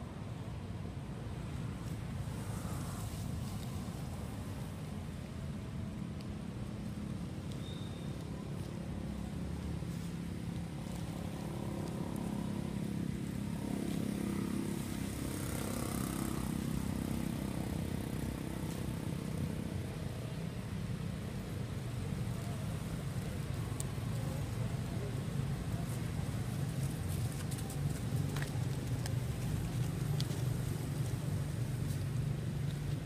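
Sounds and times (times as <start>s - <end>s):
vehicle engine rumble: 0.0s - 33.0s.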